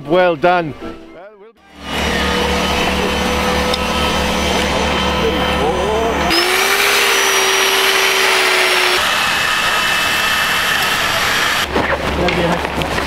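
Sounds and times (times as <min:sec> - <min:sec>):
chainsaw motor revving: 0:06.3 - 0:11.7.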